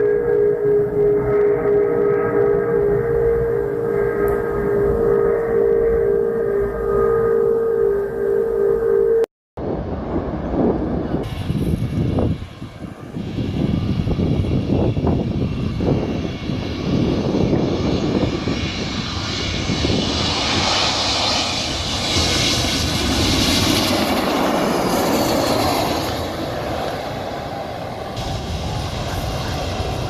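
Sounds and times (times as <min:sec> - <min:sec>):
loud steady rushing noise: 0:19.3 - 0:30.0.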